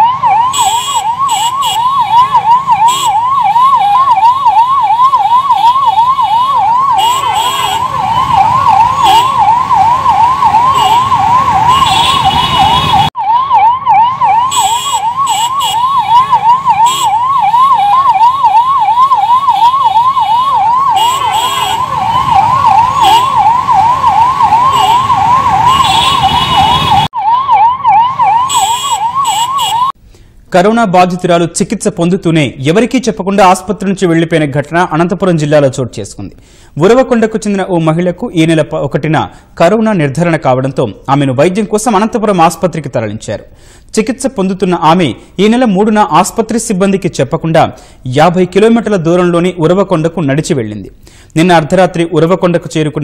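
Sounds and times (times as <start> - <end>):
ambulance siren yelping: 0.0 - 30.0.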